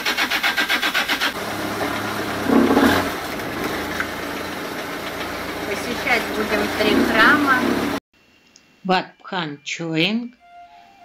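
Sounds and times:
boat engine chugging: 0:01.3 - 0:08.0.

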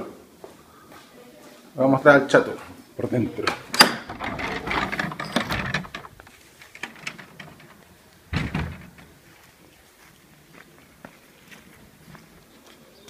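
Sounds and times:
rustling: 0:04.0 - 0:11.0.

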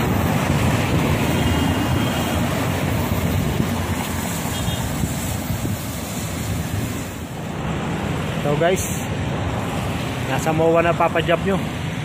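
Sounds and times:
wind rush on microphone: 0:00.0 - 0:08.4
road traffic: 0:00.0 - 0:12.0.

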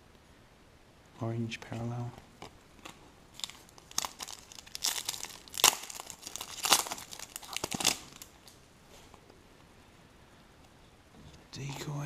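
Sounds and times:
foil wrapper tearing and crinkling: 0:02.8 - 0:08.6.

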